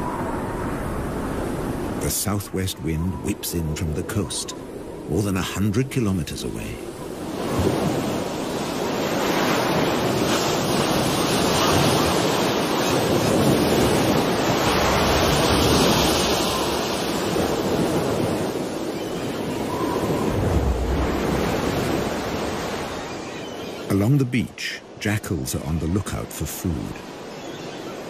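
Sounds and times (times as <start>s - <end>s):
strong wind blowing: 0.0s - 2.1s, 6.8s - 23.1s
sea surf breaking: 0.0s - 28.0s.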